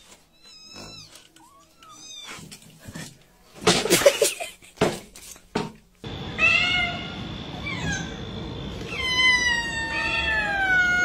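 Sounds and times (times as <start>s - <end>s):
cat meowing: 6.4s - 8.2s, 8.8s - 11.0s.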